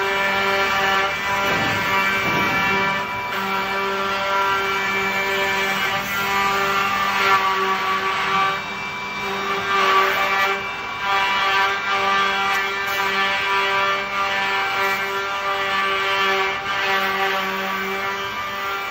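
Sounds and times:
cutters rasping into wood: 0.0 - 8.6.

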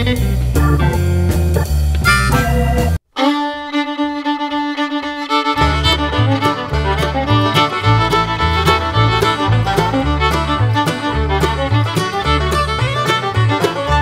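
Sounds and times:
music with bass and beat: 0.0 - 3.0
music with long held notes: 0.4 - 14.0.

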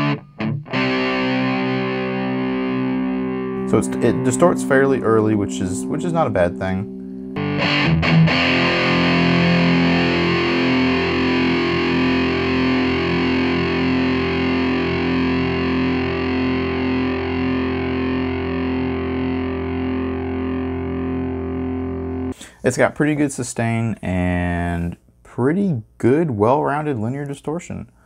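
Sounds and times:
distorted electric guitar chord: 0.0 - 22.4.

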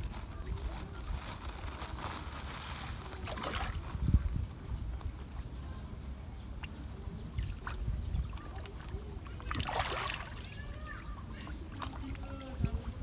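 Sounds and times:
fish splashing at water surface: 6.6 - 10.6.

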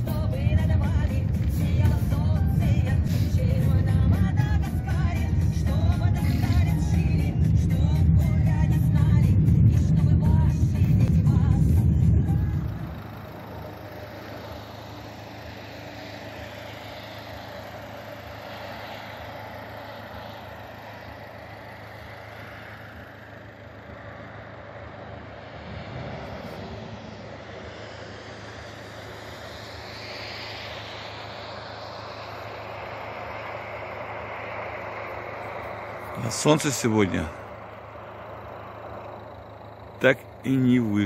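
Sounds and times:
loud low rumble: 0.0 - 14.9, 23.1 - 41.0
car road and engine noise: 0.0 - 41.0.

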